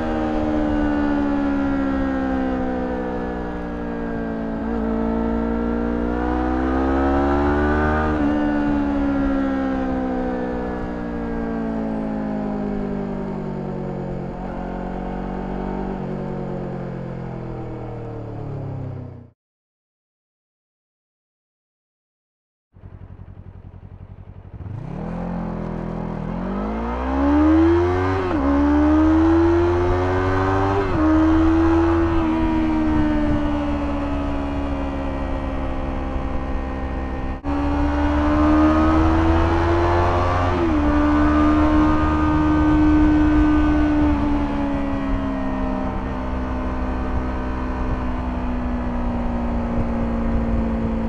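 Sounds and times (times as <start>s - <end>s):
motorcycle engine accelerating: 0.0s - 19.3s, 22.8s - 51.0s
wind rush: 30.9s - 36.5s, 47.0s - 51.0s.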